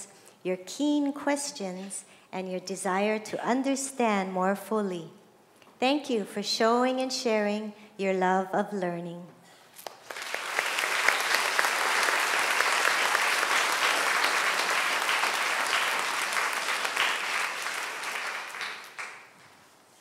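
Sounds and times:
audience applauding: 9.9s - 19.5s.

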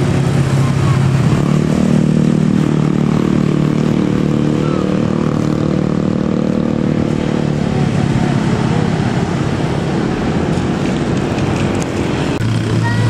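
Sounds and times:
coach diesel engine droning: 0.0s - 13.0s
motorcycle engines: 0.0s - 13.0s
road noise: 0.0s - 13.0s.

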